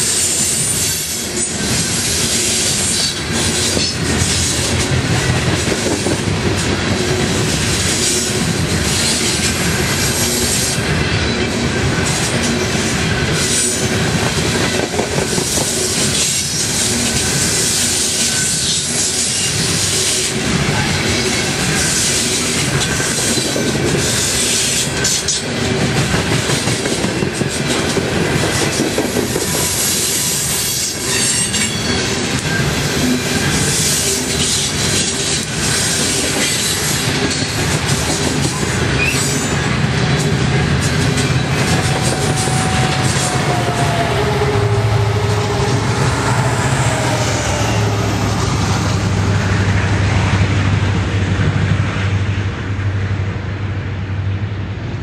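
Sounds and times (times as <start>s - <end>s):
steel wheels rumbling on rail: 0.0s - 55.0s
clacking over rail joints: 1.4s - 19.6s, 20.6s - 47.5s
wheel squeal: 29.8s - 32.7s.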